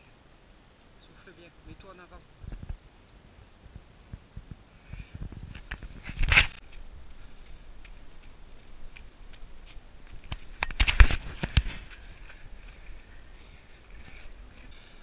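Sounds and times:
footsteps crunching on a trail: 5.2 - 15.0.

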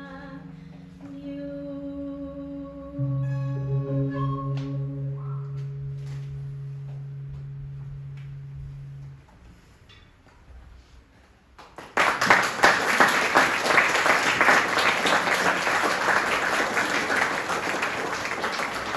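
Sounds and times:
audience applauding: 11.6 - 18.9.

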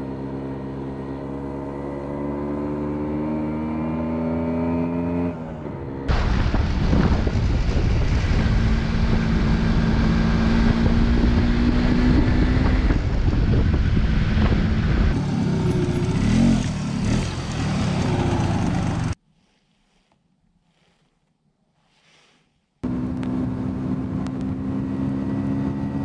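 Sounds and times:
wind and road noise: 0.0 - 19.2, 22.8 - 26.0
motorcycle engine running: 6.1 - 19.2.

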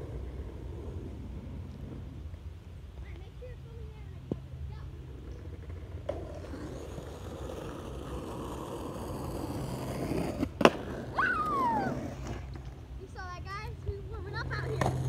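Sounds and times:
skateboard wheels rolling on asphalt: 0.0 - 15.0
skateboard clack: 4.2 - 15.0
short cry: 11.1 - 12.1.

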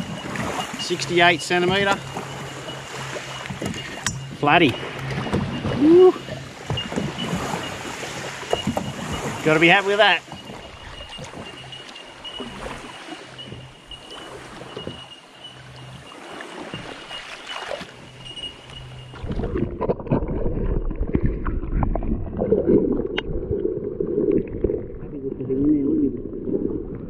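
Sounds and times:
wind buffeting microphone: 0.0 - 15.1
water sloshing around kayak hull: 0.0 - 25.5
light knocks against hull: 3.4 - 5.8, 6.6 - 9.4.

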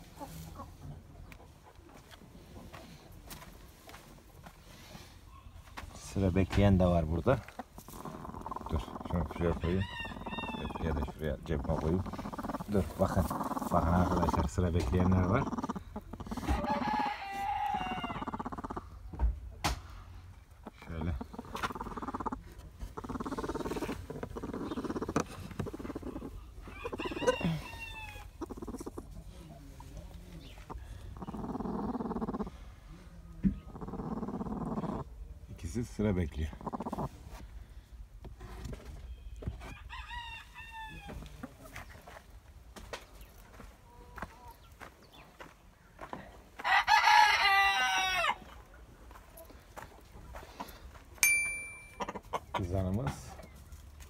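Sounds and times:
hens growling: 6.8 - 19.1, 20.4 - 37.8
rooster crowing: 9.6 - 10.8, 16.5 - 18.4, 26.7 - 28.2, 39.8 - 41.1, 46.6 - 48.5
click and ringing chime: 51.2 - 52.1.

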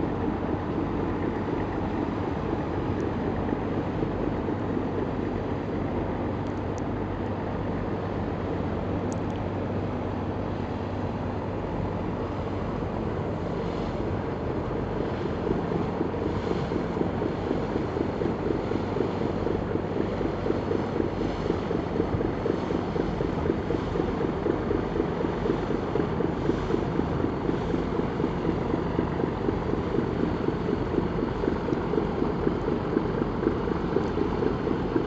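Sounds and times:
barge diesel engine chugging: 9.8 - 35.0.

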